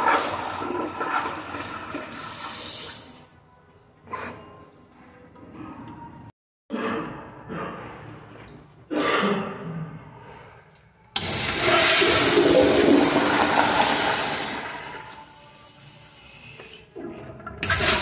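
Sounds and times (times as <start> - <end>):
toilet flushing: 0.0 - 3.3, 11.2 - 18.0.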